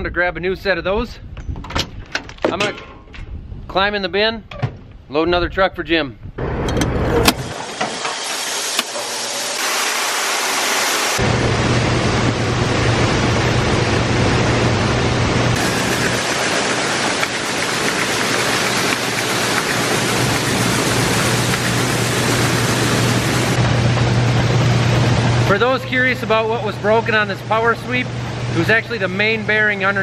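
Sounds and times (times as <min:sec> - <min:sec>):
corn draining with rushing hiss: 0:07.4 - 0:12.0, 0:15.6 - 0:23.6
machine hum: 0:07.4 - 0:30.0.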